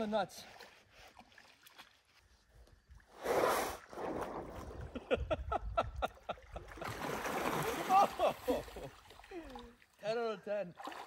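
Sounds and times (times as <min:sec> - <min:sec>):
water splashing: 0:00.4 - 0:02.2, 0:06.2 - 0:11.0
rush of water: 0:06.6 - 0:09.9.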